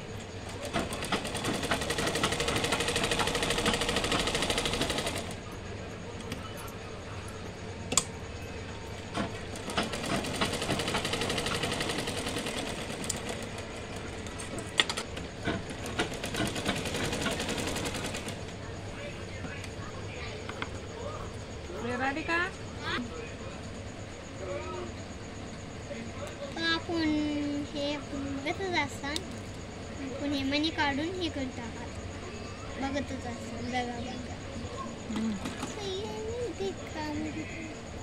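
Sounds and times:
sewing machine stitching: 0.5 - 5.4, 9.1 - 18.4.

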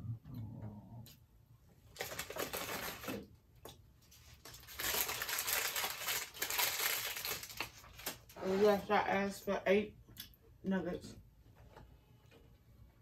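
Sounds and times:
paper bag crinkling: 1.9 - 3.3, 4.1 - 8.8.

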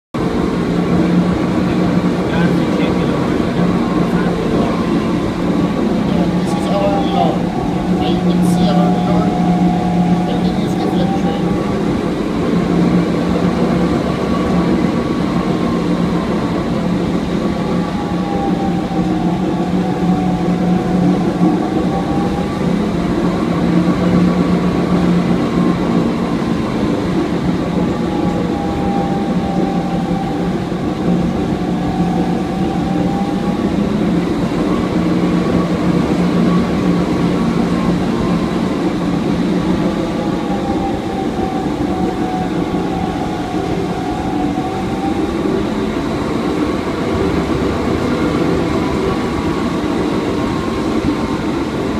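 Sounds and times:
machinery whine: 0.2 - 51.9.

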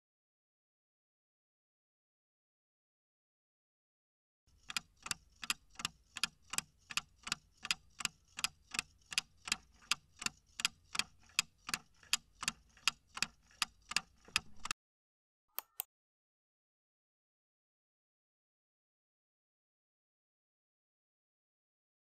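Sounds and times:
clock ticking: 4.5 - 14.8.

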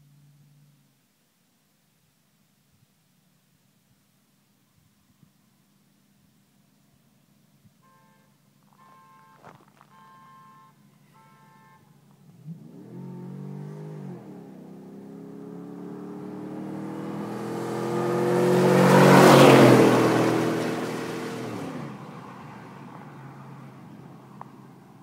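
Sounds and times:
pickup truck accelerating past: 12.4 - 24.8.

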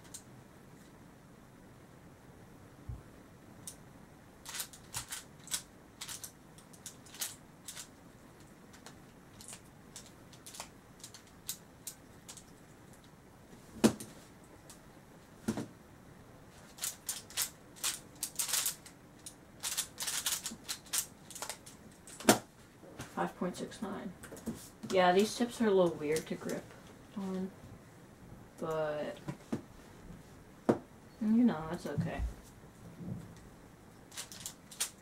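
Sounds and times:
puzzle cube clicking: 4.5 - 7.9, 16.7 - 22.4.

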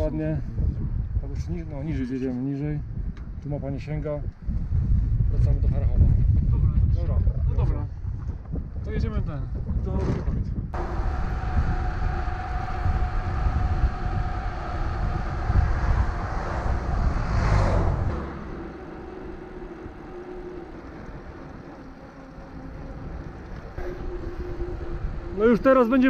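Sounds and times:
wind rushing over camera: 0.0 - 26.0
truck driving past: 10.8 - 25.3.

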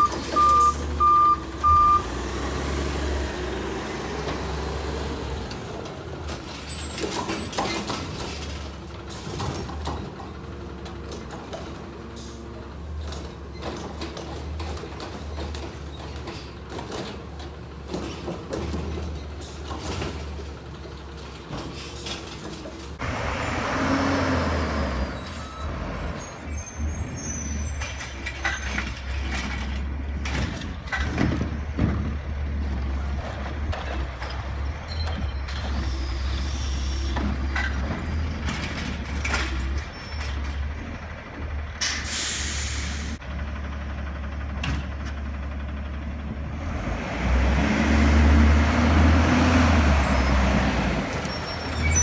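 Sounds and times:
garbage truck engines running: 0.0 - 52.0
air brakes hissing: 21.7 - 22.1, 35.8 - 37.2, 41.8 - 43.2.

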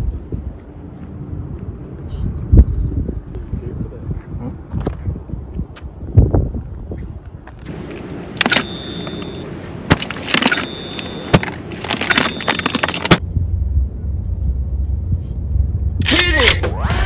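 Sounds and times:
short ringing chime: 8.5 - 9.5, 10.5 - 11.3.

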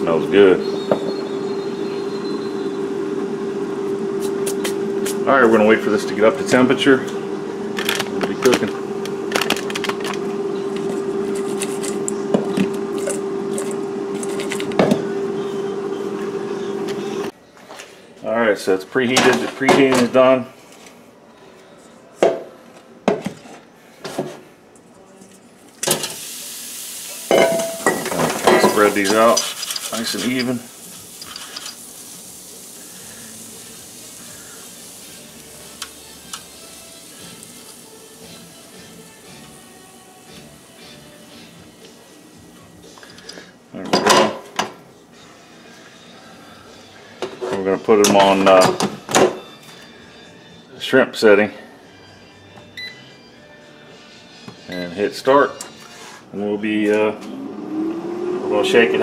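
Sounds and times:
air fryer humming: 0.0 - 17.4, 25.7 - 59.0
shrimp sizzling: 25.9 - 41.3.

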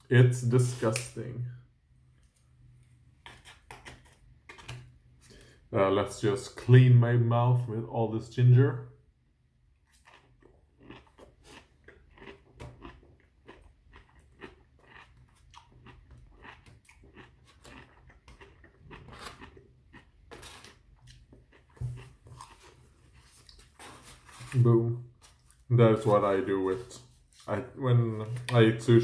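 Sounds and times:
person chewing crunchy food: 9.8 - 25.7.

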